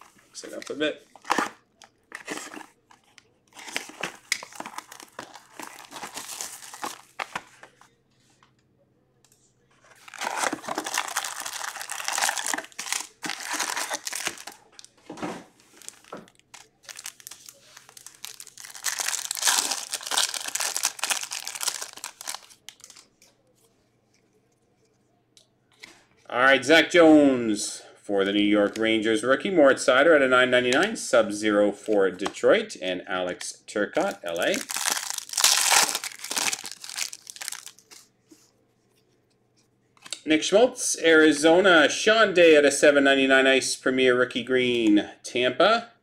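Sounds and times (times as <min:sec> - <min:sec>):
card pack wrappers crinkling and tearing: 0:00.0 - 0:07.6, 0:09.9 - 0:15.0, 0:15.6 - 0:23.2, 0:34.0 - 0:38.1.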